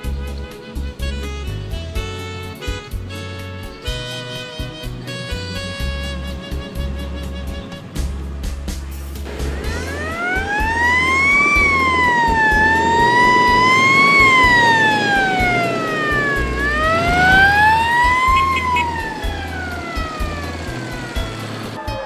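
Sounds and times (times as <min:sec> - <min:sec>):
emergency vehicle siren wailing: 0:09.3 - 0:22.0.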